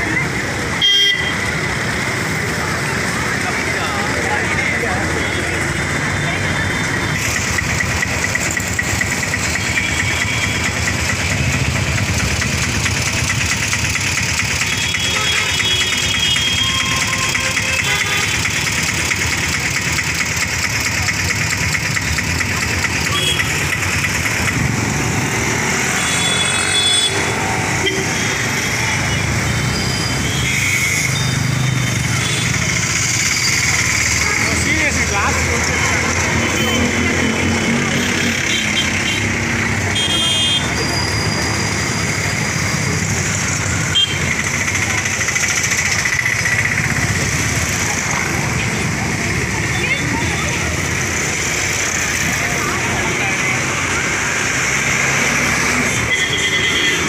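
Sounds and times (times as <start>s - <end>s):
indistinct chatter: 0.0s - 57.0s
motorcycle engines passing: 0.0s - 57.0s
street traffic noise: 0.0s - 57.0s.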